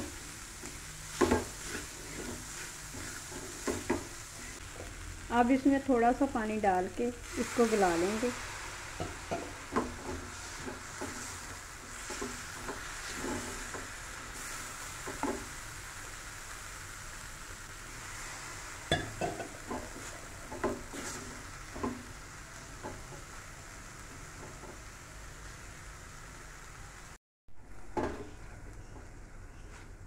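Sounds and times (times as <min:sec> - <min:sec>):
spatula scraping and knocking pan: 0:00.0 - 0:05.0, 0:09.0 - 0:15.5, 0:18.9 - 0:23.4
vegetables sizzling in a pan: 0:00.0 - 0:30.0.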